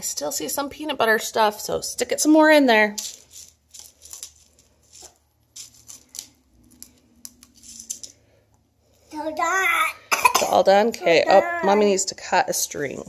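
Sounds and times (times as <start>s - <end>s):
crunchy rustles and small clicks: 3.0s - 8.3s.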